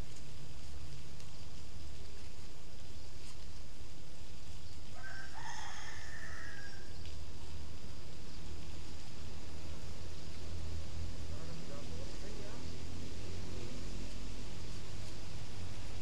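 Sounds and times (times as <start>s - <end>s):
steady low rumble: 7.1s - 16.0s.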